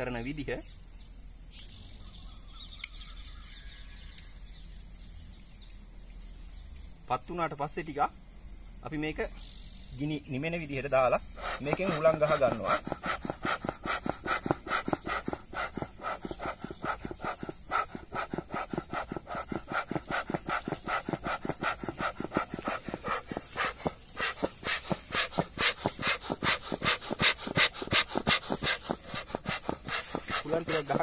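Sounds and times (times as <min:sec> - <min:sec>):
bellows puffing air: 0:10.8 - 0:31.0.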